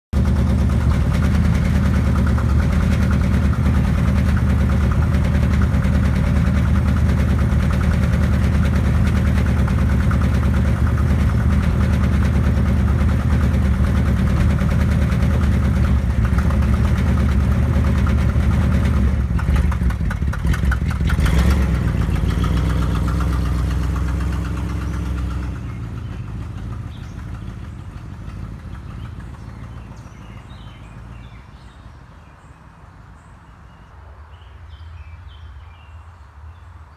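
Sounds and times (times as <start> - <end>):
car engine idling: 0.1 - 32.5
car driving off: 0.2 - 32.4.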